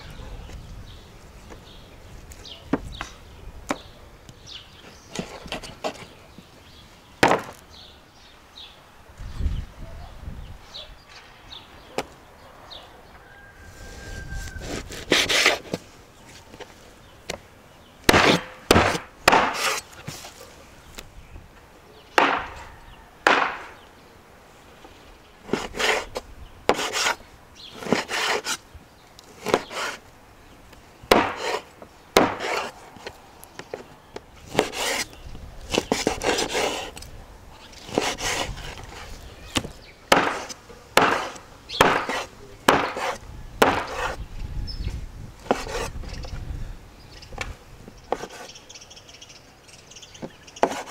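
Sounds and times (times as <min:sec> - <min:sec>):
cleaver chopping on wooden board: 0:18.1 - 0:19.8, 0:22.2 - 0:22.6, 0:23.2 - 0:23.8, 0:26.7 - 0:27.2, 0:29.4 - 0:30.0, 0:31.1 - 0:31.6, 0:32.2 - 0:32.7, 0:39.5 - 0:44.2, 0:50.2 - 0:50.9.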